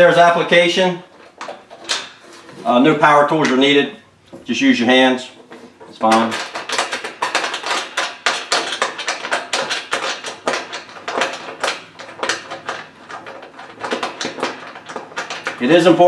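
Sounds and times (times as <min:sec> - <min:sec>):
metal shutter clicking and rattling: 0:01.1 - 0:02.6, 0:05.4 - 0:16.0.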